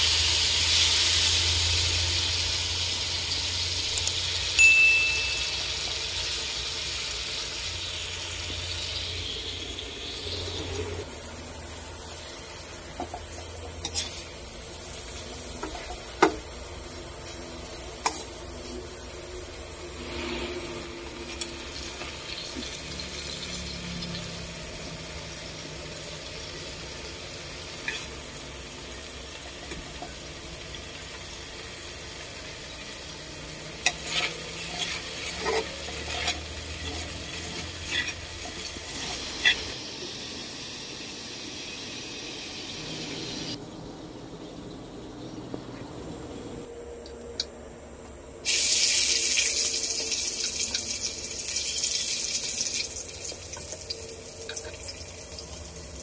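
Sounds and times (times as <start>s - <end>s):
meat sizzling in a wok: 0.0s - 43.6s, 48.4s - 56.0s
spatula scraping pan: 13.0s - 14.4s, 27.8s - 28.3s, 33.7s - 39.8s.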